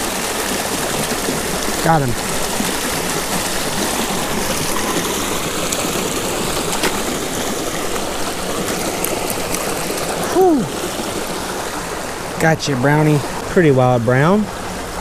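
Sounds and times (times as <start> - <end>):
creek rushing over rocks: 0.0 - 15.0
short exclamation: 10.3 - 10.8.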